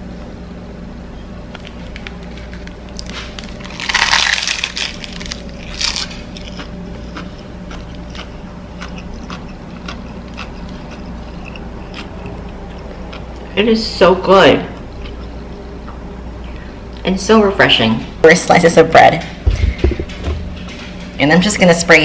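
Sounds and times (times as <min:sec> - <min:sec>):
seaweed crunching: 0:01.5 - 0:13.3
low hum: 0:19.2 - 0:21.7.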